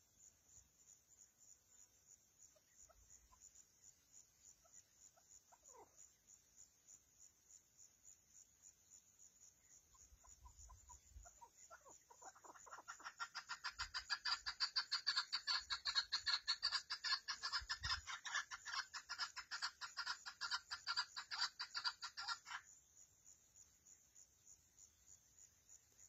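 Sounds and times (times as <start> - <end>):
partridge clucking calls: 9.9 - 22.7.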